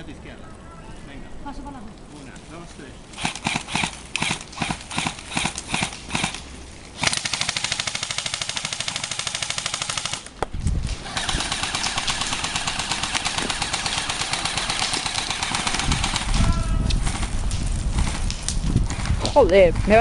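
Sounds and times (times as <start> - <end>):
airsoft rifles firing: 3.2 - 6.4, 7.0 - 10.4, 11.0 - 17.3.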